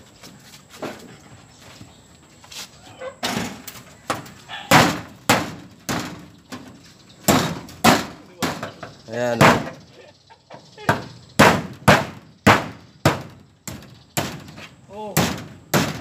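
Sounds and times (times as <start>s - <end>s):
hammer nailing metal sheet: 11.4s - 14.6s, 15.2s - 16.0s.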